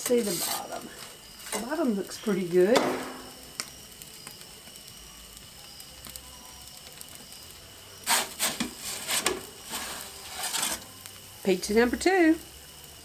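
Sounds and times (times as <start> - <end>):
metal pizza peel scraping stone: 0.0 - 0.7, 8.0 - 10.9
gas burner hum: 0.0 - 13.0.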